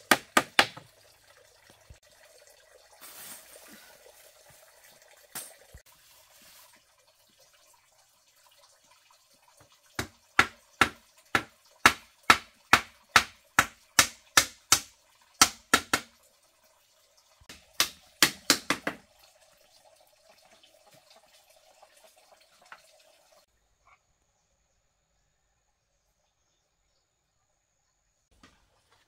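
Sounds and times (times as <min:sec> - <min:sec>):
hammer knocking on bamboo: 0:00.0 - 0:00.9, 0:10.0 - 0:16.1, 0:17.5 - 0:19.0.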